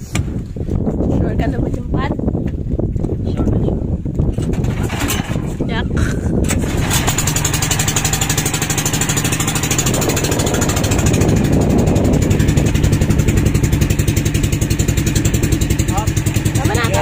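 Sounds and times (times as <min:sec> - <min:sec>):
boat engine chugging: 0:04.5 - 0:17.0.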